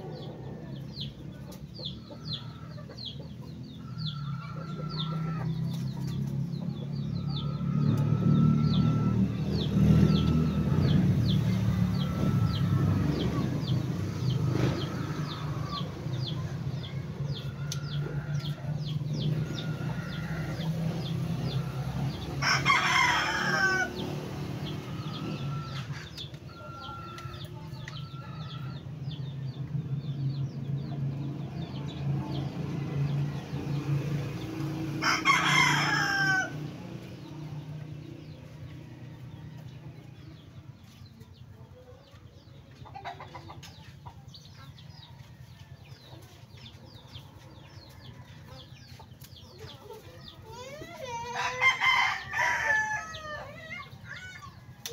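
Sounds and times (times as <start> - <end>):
rooster crowing: 17.5 - 20.8, 22.2 - 28.8, 35.0 - 36.8, 51.1 - 54.4.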